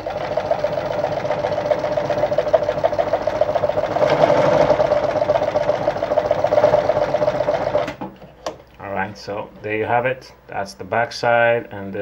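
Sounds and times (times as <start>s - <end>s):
sewing machine clattering: 0.0s - 8.0s.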